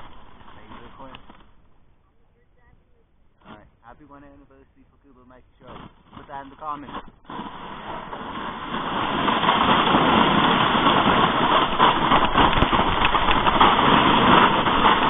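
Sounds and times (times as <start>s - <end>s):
sled scraping over snow: 0.0s - 1.4s, 5.6s - 15.0s
wind buffeting microphone: 6.8s - 15.0s.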